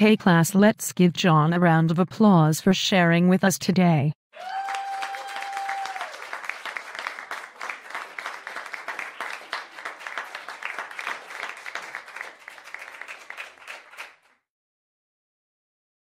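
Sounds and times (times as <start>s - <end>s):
crowd applause: 4.4s - 14.4s.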